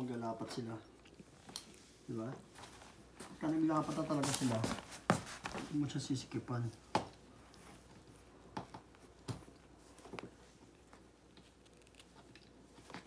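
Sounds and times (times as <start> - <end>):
cat scuffling with toy: 2.5 - 5.8.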